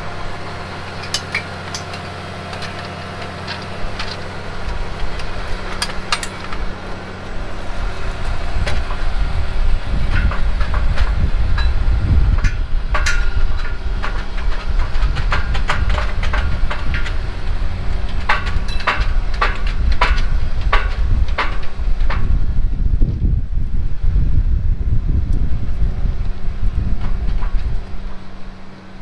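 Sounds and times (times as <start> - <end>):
tractor engine idling: 0.0 - 22.9
heavy low rumble: 0.0 - 29.0.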